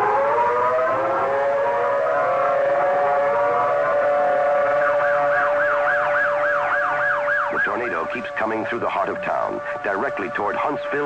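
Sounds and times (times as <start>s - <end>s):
civil defense siren wailing: 0.0s - 11.0s
fast warbling siren: 0.0s - 11.0s.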